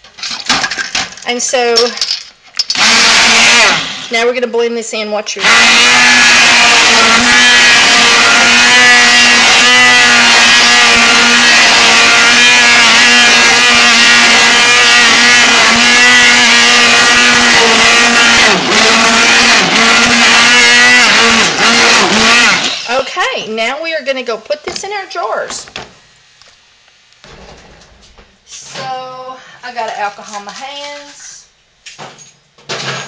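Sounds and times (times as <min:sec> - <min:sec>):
stick blender running in a metal pot: 0:02.7 - 0:04.2, 0:05.4 - 0:23.1.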